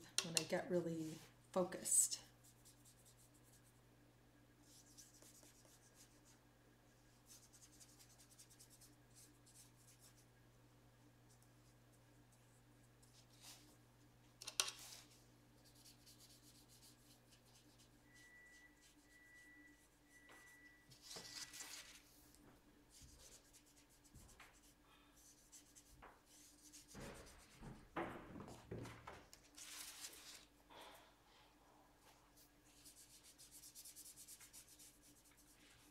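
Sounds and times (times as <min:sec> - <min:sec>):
paintbrush rubbing on paper: 0:02.4 - 0:03.8, 0:04.6 - 0:06.4, 0:07.2 - 0:10.3, 0:14.8 - 0:22.1, 0:22.9 - 0:27.6, 0:32.6 - 0:35.9.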